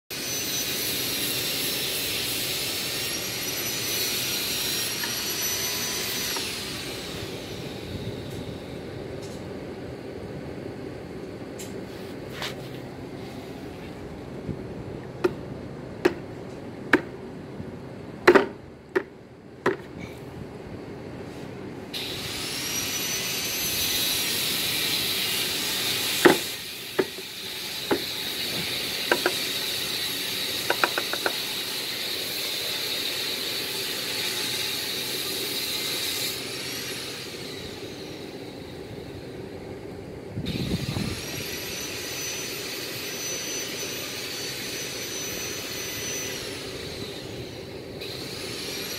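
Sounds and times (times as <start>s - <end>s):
high-pitched motorised machine: 0.1s - 8.9s, 22.0s - 39.3s, 40.5s - 48.9s
sharp knocks and clicks: 16.9s - 17.1s, 18.2s - 19.9s, 29.1s - 29.4s, 30.7s - 31.4s.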